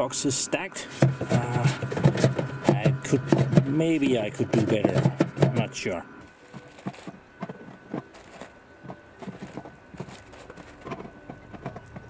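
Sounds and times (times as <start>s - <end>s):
drink cans clinking: 0.9s - 5.8s.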